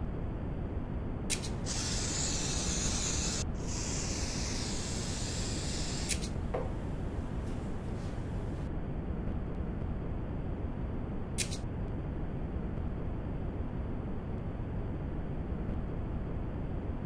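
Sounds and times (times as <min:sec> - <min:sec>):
spray can click: 0:01.3 - 0:06.7
aerosol spray hissing: 0:01.4 - 0:08.7.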